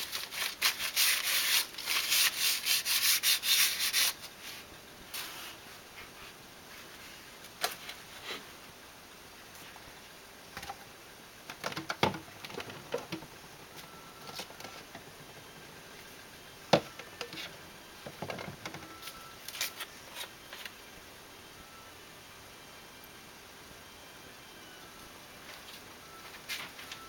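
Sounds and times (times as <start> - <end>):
plastic bottles clicking and knocking: 11.5 - 13.3.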